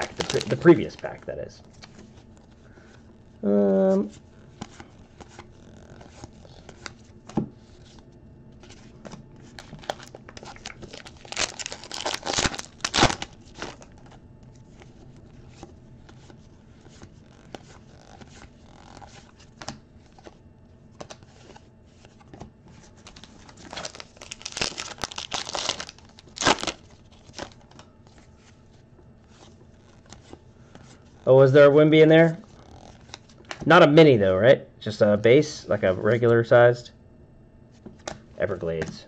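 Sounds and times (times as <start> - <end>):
pack wrapper crinkling and tearing: 0.0 - 1.2, 9.6 - 14.2, 23.0 - 27.8.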